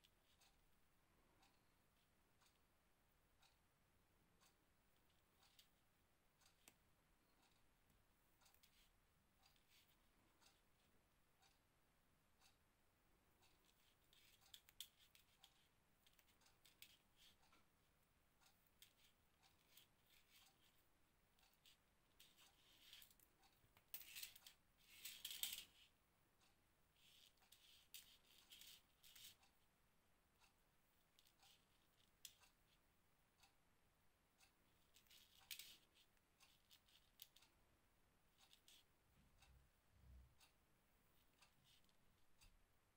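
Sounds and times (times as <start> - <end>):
small clicks of crochet tools: 2.4 - 2.6, 4.4 - 5.8, 6.4 - 7.7, 8.3 - 10.6, 13.4 - 17.7, 18.4 - 29.6, 30.4 - 32.8, 34.4 - 37.6, 38.4 - 42.6.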